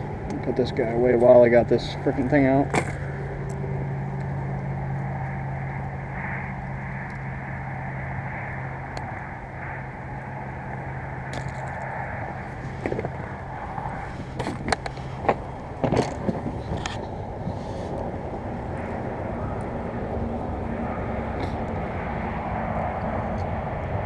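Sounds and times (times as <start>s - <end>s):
steady low hum: 0.0s - 24.0s
fishing tackle clicks and knocks: 11.3s - 11.9s, 14.4s - 17.2s.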